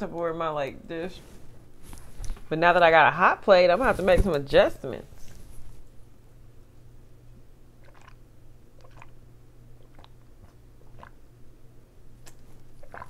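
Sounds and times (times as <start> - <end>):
low steady hum: 0.0 - 13.0
swallowing gulps: 7.8 - 8.2, 8.8 - 9.2, 9.8 - 11.2, 12.2 - 13.0.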